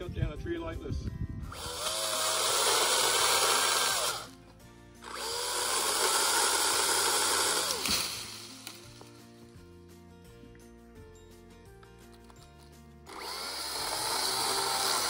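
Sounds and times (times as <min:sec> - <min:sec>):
soft background music: 0:00.0 - 0:15.0
electric chainsaw cutting wood: 0:01.5 - 0:04.3, 0:05.0 - 0:08.9, 0:13.1 - 0:15.0.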